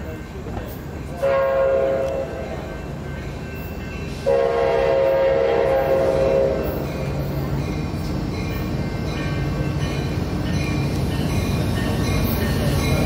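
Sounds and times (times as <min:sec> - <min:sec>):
low rumble of train: 0:00.0 - 0:13.0
train horn blasts: 0:01.2 - 0:02.5, 0:04.2 - 0:06.8.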